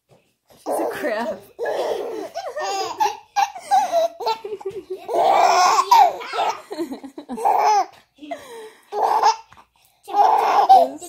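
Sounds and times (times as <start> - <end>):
baby laughing: 0.6 - 8.0, 8.9 - 9.5, 10.1 - 11.0.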